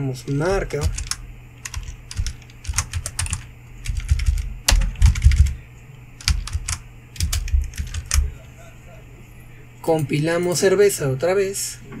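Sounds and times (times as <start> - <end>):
keyboard typing clicks: 0.7 - 5.6, 6.2 - 8.3.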